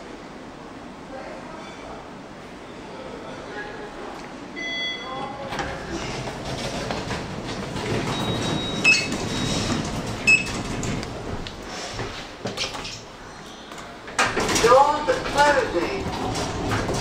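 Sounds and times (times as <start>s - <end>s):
lift running rumble: 4.0s - 17.0s
short electronic beeps: 4.6s - 5.1s.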